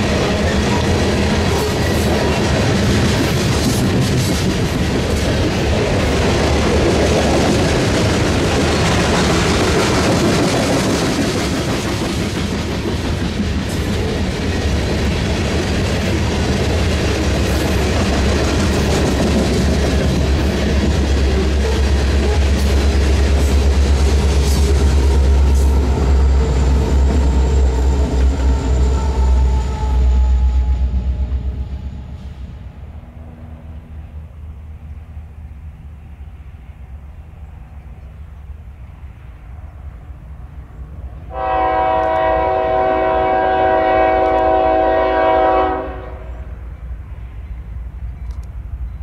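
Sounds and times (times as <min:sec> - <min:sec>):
steel wheels clattering on rails: 0:00.0 - 0:30.1
freight train rumbling past: 0:00.0 - 0:49.0.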